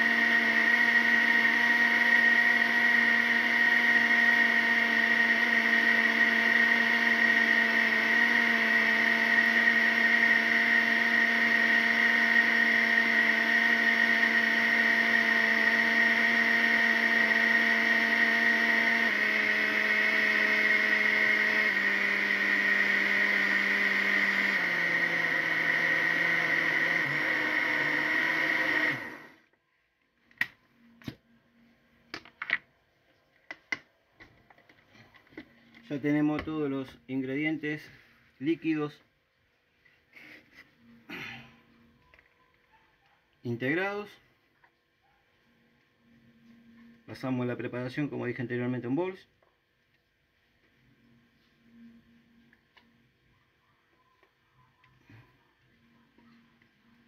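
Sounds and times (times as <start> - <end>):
electric blender running: 0.0 - 29.5.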